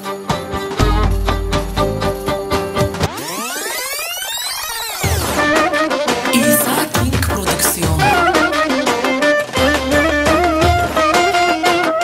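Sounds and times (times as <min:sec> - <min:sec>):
instrumental dance music: 0:06.4 - 0:08.2.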